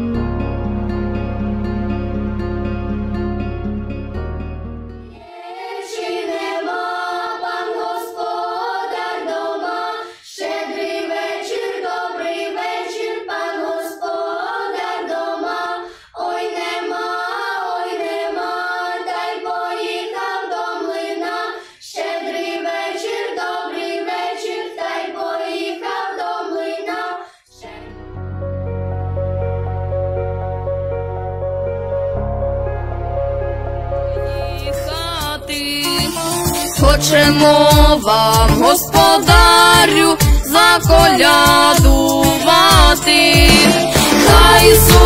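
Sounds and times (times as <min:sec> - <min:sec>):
soft instrumental music: 0:00.0 - 0:05.2, 0:27.7 - 0:45.0
girls' choir singing unaccompanied: 0:05.2 - 0:28.0, 0:36.8 - 0:45.0.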